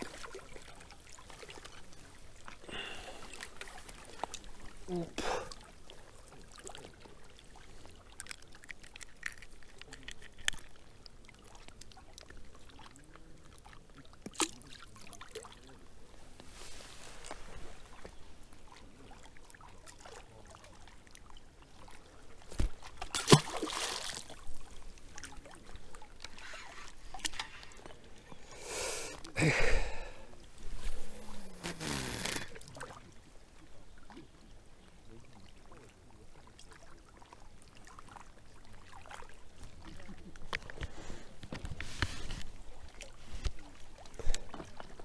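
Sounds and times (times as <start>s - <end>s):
river water lapping at bank: 0.0s - 45.0s.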